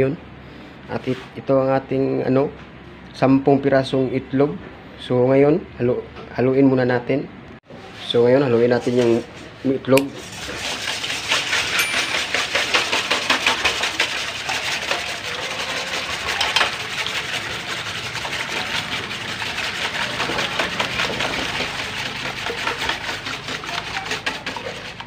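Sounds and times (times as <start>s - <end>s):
whisk clattering in metal bowl: 10.1s - 25.0s
eggs sloshing: 10.2s - 25.0s.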